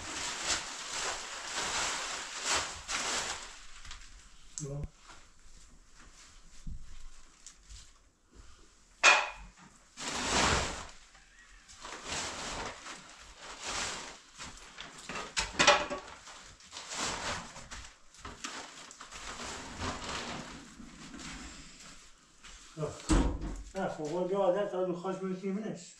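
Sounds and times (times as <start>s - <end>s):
heavy cloth rustling: 0.0s - 4.4s.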